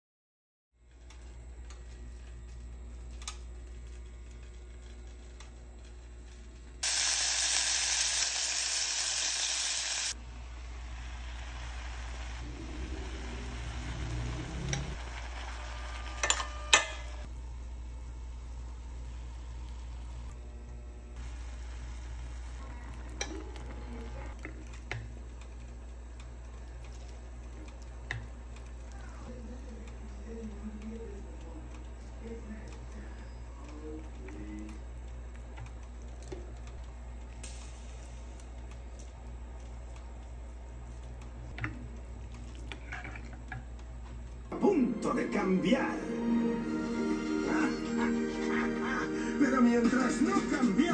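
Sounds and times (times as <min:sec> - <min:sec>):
steady hiss: 0:06.8 - 0:14.3
chicken sizzling in a pot: 0:06.8 - 0:20.4, 0:21.1 - 0:25.3, 0:35.6 - 0:44.4
steady low hum: 0:10.1 - 0:45.0
fork and spoon stirring soup: 0:42.5 - 0:43.6.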